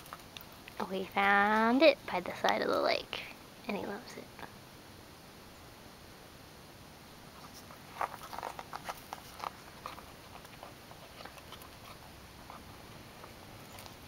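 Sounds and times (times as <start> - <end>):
puppy biting rubber ball: 7.5 - 14.0.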